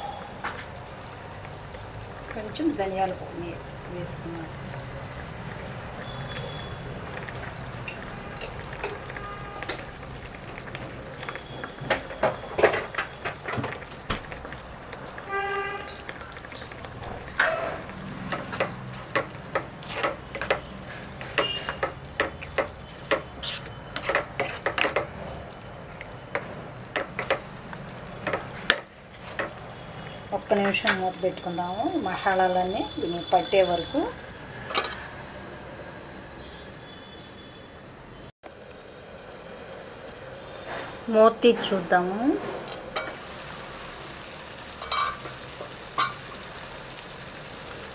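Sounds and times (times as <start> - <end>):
curry simmering in a pan: 0.0 - 35.4, 38.4 - 47.9
ladle scraping a pan: 22.9 - 25.1.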